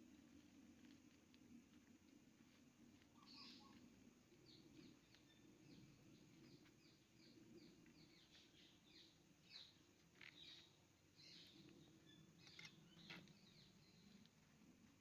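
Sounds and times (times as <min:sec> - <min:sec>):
bird chirping faintly: 0:03.1 - 0:14.3.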